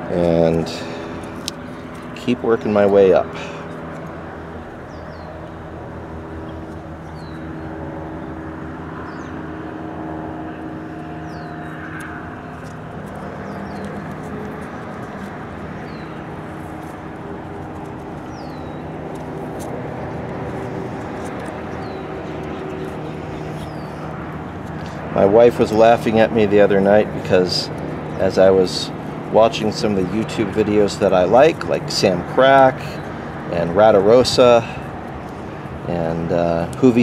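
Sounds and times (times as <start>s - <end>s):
distant engine drone: 0.0s - 37.0s
small bird chirping: 11.0s - 17.0s, 17.8s - 25.0s.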